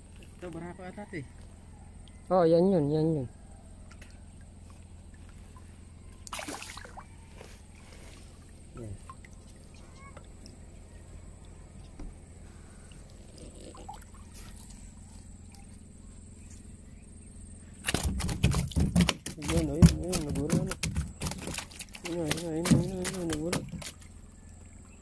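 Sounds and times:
low hum: 0.0s - 25.0s
water splashing: 5.1s - 10.7s, 17.8s - 24.8s.

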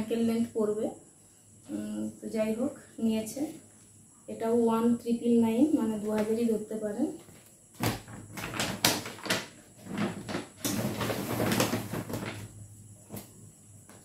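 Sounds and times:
shopping bag crackling: 7.8s - 12.5s.

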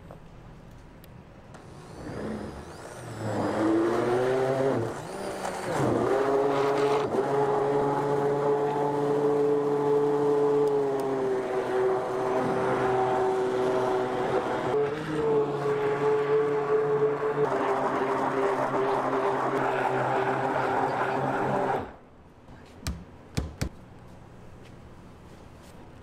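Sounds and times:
immersion blender motor whine: 1.6s - 22.0s.

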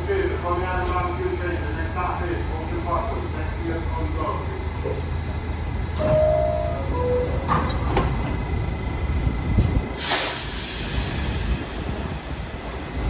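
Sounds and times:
low rumble of standing train: 0.0s - 13.0s
train doors sliding shut: 5.9s - 12.8s
two-note falling door chime: 6.0s - 7.5s
hissing air burst: 10.0s - 12.1s.

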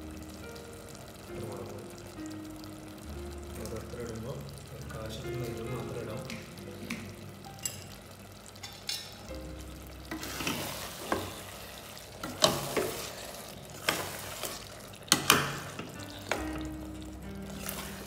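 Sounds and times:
food sizzling: 0.0s - 18.0s
metal spatula scraping a pot: 10.1s - 11.6s, 12.3s - 14.8s.

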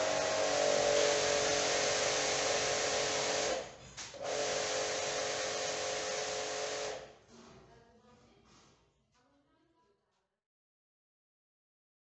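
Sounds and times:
pressure washer hiss and whine: 0.0s - 7.1s.

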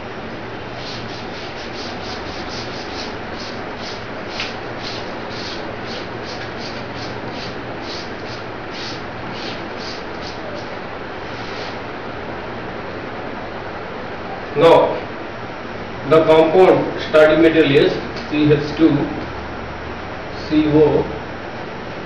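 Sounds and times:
eraser wiping a chalkboard: 0.7s - 11.8s.

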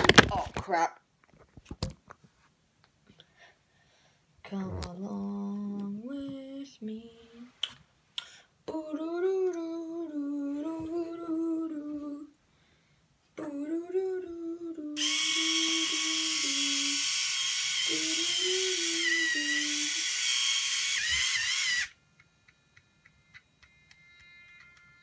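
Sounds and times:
person humming: 4.5s - 7.6s, 17.9s - 20.1s
electric shaver buzzing: 15.0s - 25.0s.

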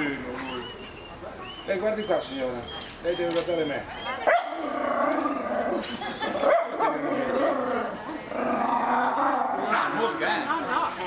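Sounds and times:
small dog barking: 4.0s - 4.6s, 6.4s - 7.1s.

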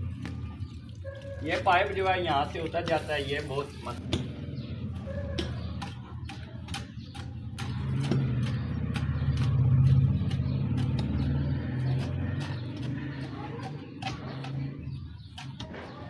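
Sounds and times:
low engine hum: 3.8s - 16.0s.

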